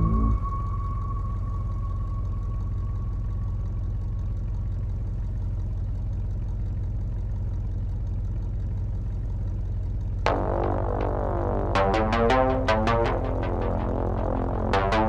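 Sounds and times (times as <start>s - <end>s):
high held synth tone: 0.0s - 3.9s, 10.3s - 15.0s
low synthesizer drone: 0.0s - 6.4s, 10.2s - 15.0s.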